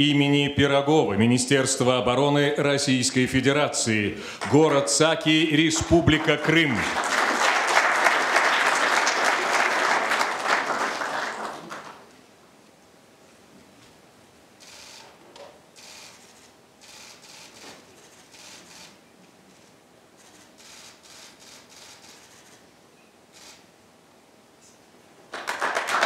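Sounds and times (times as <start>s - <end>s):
audience applauding: 4.3s - 4.8s, 5.6s - 12.1s, 25.3s - 26.0s.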